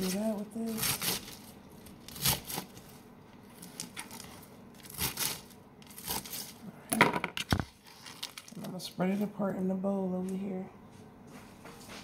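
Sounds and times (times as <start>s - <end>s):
lettuce crunching: 0.0s - 6.6s.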